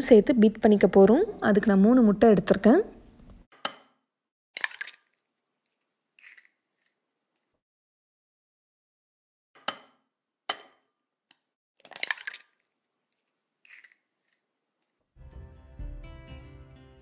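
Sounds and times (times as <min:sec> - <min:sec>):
egg shell crackling open: 0:04.6 - 0:07.1, 0:11.8 - 0:15.0
background music: 0:15.2 - 0:17.0.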